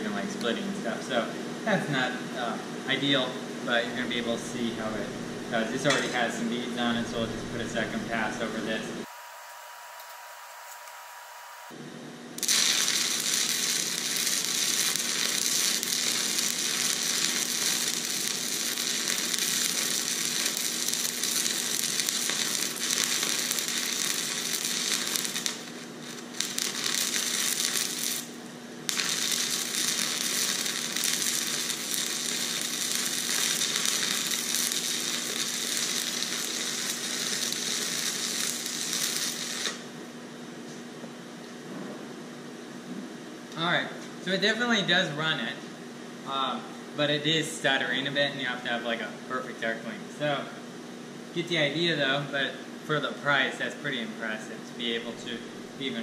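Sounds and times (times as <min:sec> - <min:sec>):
stick welding arc: 0:12.4 - 0:39.9.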